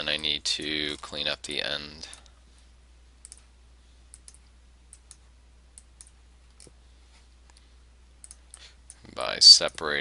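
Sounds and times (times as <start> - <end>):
low electrical hum: 0.0 - 10.0
computer mouse clicks: 3.2 - 3.5, 4.1 - 6.8, 7.5 - 9.1.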